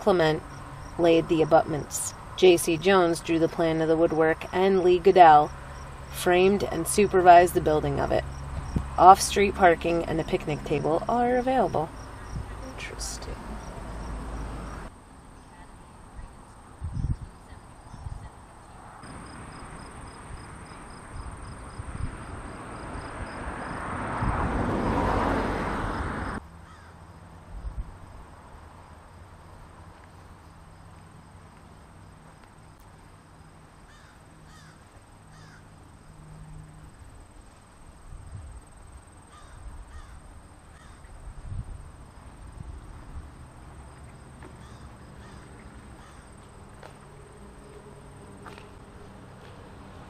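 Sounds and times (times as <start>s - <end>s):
passing vehicle rush: 0.0s - 15.0s, 18.6s - 29.8s, 41.9s - 50.0s
insects droning: 0.0s - 50.0s
faint animal calls: 33.9s - 35.7s, 44.6s - 46.4s.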